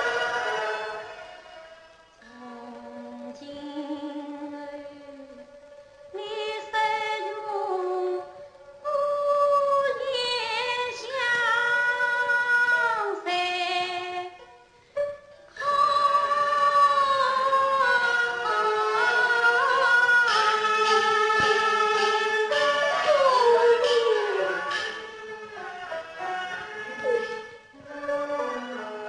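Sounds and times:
woman singing opera: 2.2 - 14.4, 15.0 - 25.0.

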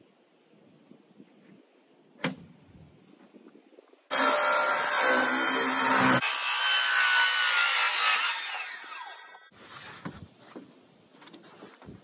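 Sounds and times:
circular saw cutting wood: 4.1 - 9.5.

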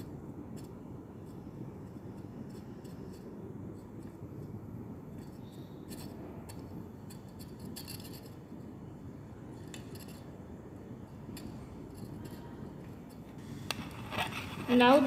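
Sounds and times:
glass rod scraping porcelain dish: 13.8 - 15.0.

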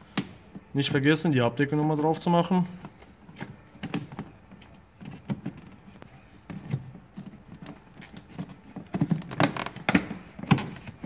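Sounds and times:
plastic clicks and knocks: 6.5 - 11.0.

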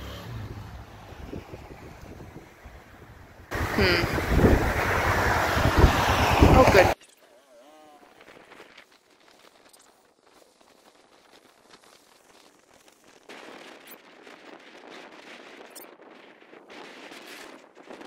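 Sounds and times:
atv engine with popping exhaust: 0.0 - 2.5.

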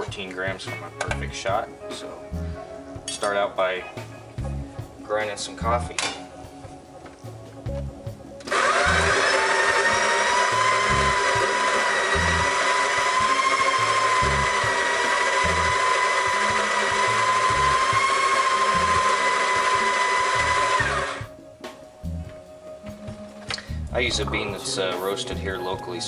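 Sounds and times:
coffee grinder motor whine: 8.4 - 21.2.

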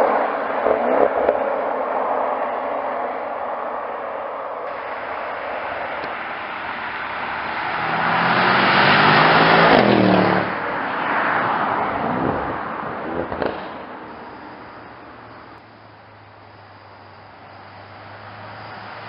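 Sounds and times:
exhaust cracks: 4.7 - 15.6
car engine accelerating past: 6.0 - 14.8.

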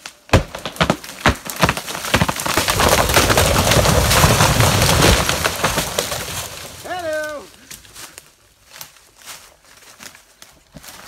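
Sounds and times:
wood cracking and popping: 0.0 - 8.1
tree crashing with deep rumble: 0.3 - 7.4.

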